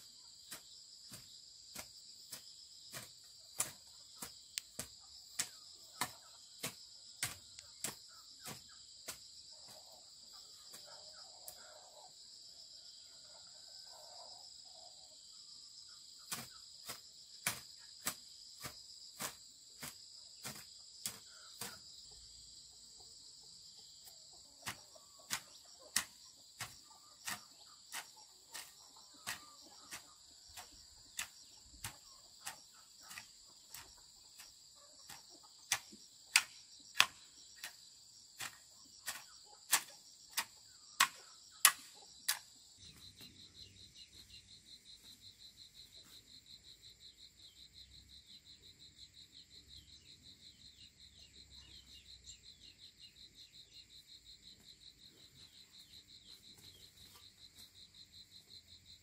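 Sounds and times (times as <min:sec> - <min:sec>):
crickets chirring: 0:00.0 - 0:59.0
hoe chopping into ground: 0:00.5 - 0:09.3, 0:16.3 - 0:21.8, 0:24.6 - 0:37.8, 0:38.4 - 0:42.5.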